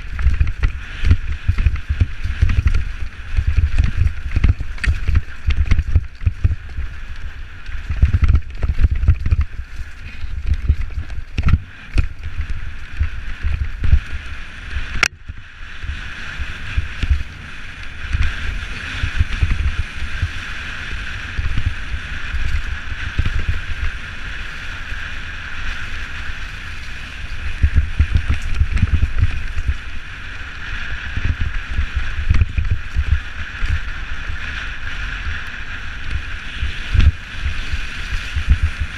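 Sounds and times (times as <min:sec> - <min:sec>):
bike rattling over rough ground: 0:00.0 - 0:38.9
wind buffeting microphone: 0:00.0 - 0:38.9.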